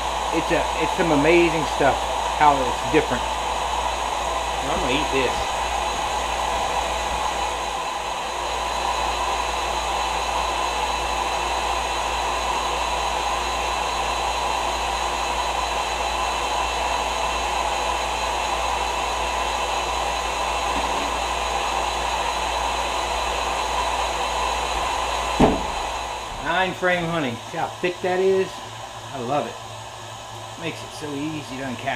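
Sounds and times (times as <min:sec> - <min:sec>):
rushing air: 0:20.2 - 0:30.9.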